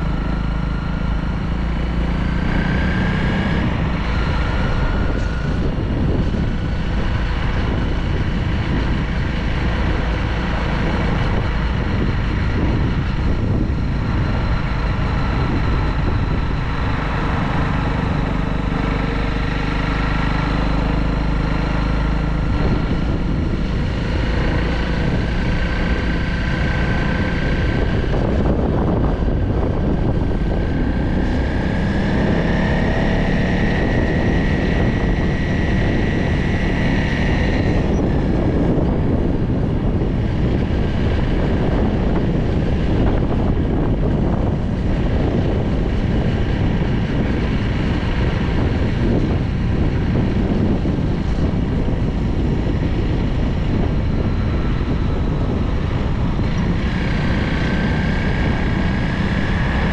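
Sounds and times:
vehicle motor whine: 0.0s - 59.9s
wind buffeting microphone: 0.0s - 59.9s.

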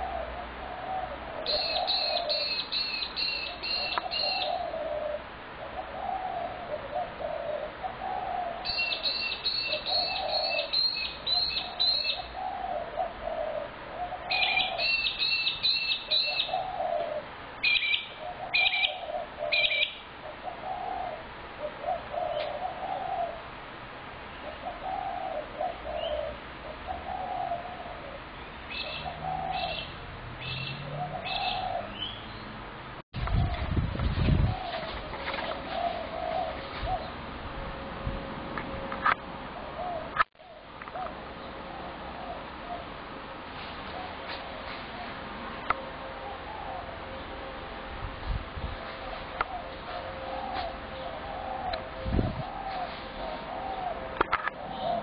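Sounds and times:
doves cooing: 0.0s - 32.3s, 33.2s - 55.0s
bird chirping rapidly: 1.5s - 4.6s, 8.6s - 12.4s, 14.3s - 16.6s, 17.6s - 20.0s, 28.7s - 32.6s.

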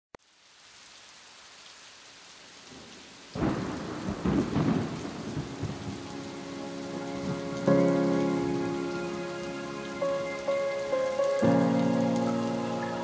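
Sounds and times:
rain hiss: 0.2s - 13.0s
thunder clap rumbling: 3.4s - 8.8s.

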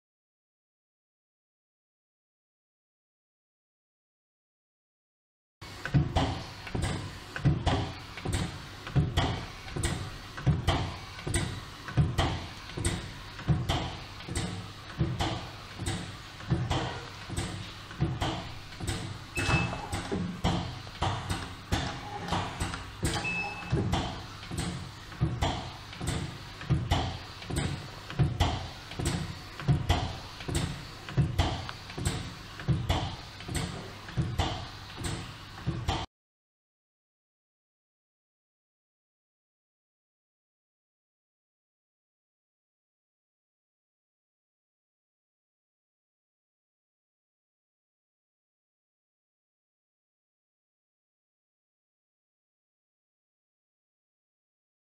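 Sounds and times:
pneumatic cylinders knocking: 5.6s - 36.1s
printing machine clacking: 5.6s - 36.1s.

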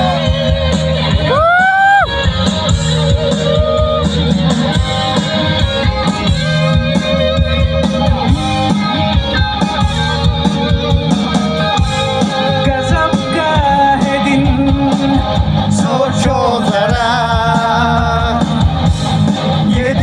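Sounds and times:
drums: 0.0s - 20.0s
electric guitars: 0.0s - 20.0s
person singing: 12.4s - 18.7s.

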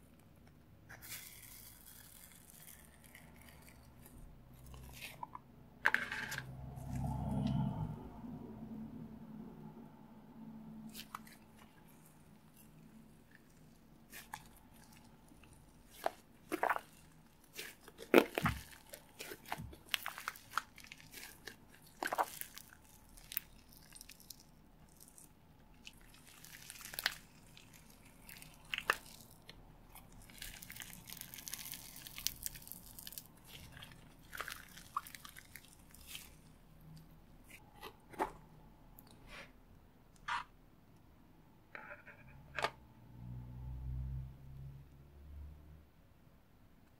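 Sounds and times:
slime sticky crackles and pops: 15.8s - 36.4s.

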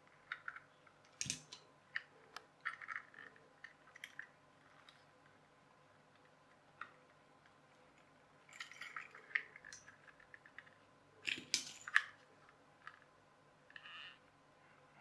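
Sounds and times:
plastic gearbox parts clicking: 0.2s - 5.0s.

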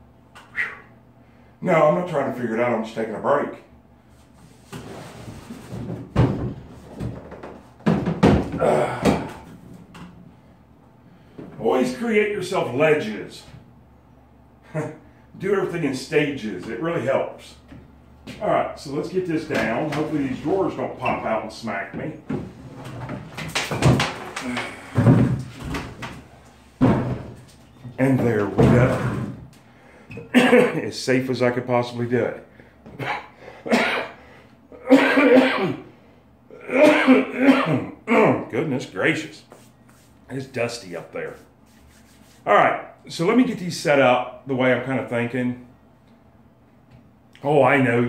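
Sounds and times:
wooden cabinet scraping and knocking: 4.6s - 8.6s, 22.3s - 29.5s.

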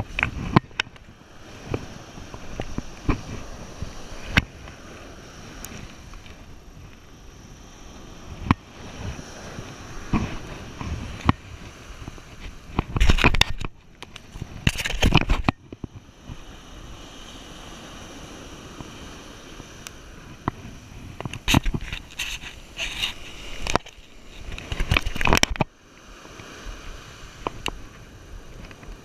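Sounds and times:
clicks and rustles handling fish: 0.0s - 4.8s, 5.6s - 7.1s, 10.1s - 16.1s, 20.3s - 25.7s
surf washing on beach: 0.0s - 29.0s.

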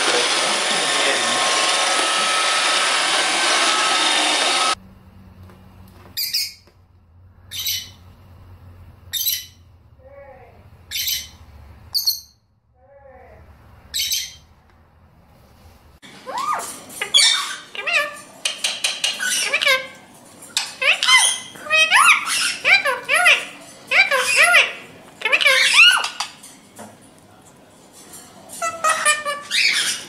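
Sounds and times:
robot vacuum cleaner whirring: 0.0s - 4.8s
lovebird chirps: 6.1s - 6.7s, 7.4s - 8.0s, 9.1s - 9.7s, 10.8s - 12.5s, 13.9s - 14.5s.

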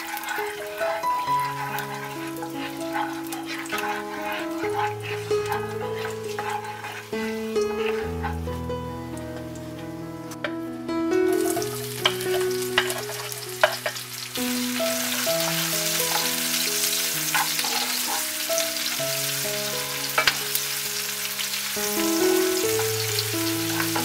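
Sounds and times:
wooden spatula stirring: 0.0s - 8.7s, 11.3s - 19.0s, 21.9s - 24.0s
onion sizzling in hot oil: 0.0s - 9.9s, 11.3s - 24.0s
slow background music: 0.0s - 24.0s.

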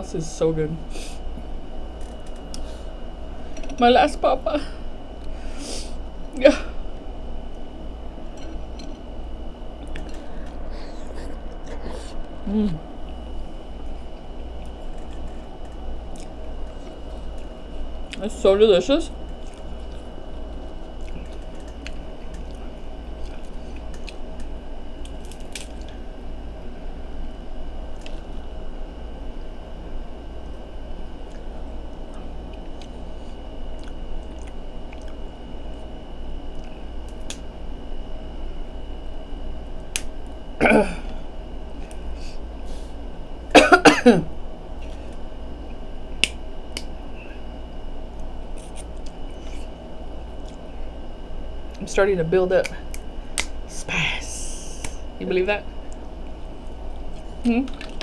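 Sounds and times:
low background hum: 0.0s - 58.0s
chewing: 14.6s - 17.5s, 19.3s - 26.0s, 33.8s - 35.9s, 57.2s - 58.0s
crab shells cracking: 23.2s - 26.0s.

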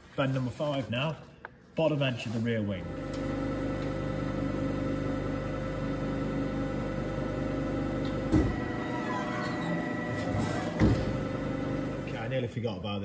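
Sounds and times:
press brake humming: 7.3s - 12.1s
thump: 8.3s - 8.6s, 10.7s - 11.2s.

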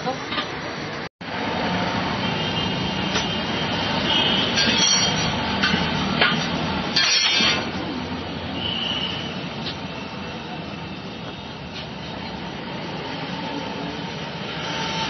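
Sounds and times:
road traffic noise: 0.0s - 15.0s
metallic clink: 4.5s - 7.8s.

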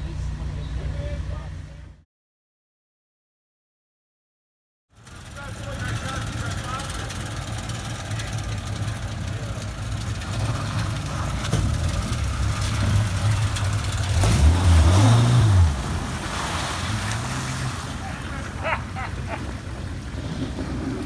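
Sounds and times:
vehicle engine running and revving: 5.0s - 18.3s.

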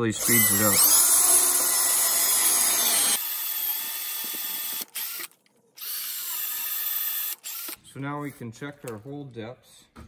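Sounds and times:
electric drill boring into wood: 0.0s - 7.8s.

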